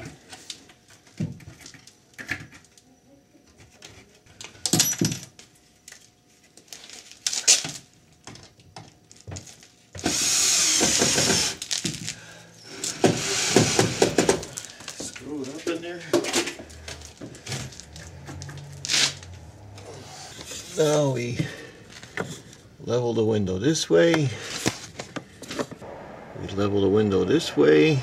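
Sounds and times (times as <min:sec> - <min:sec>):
power drill running: 0:10.0 - 0:11.6, 0:12.7 - 0:14.4.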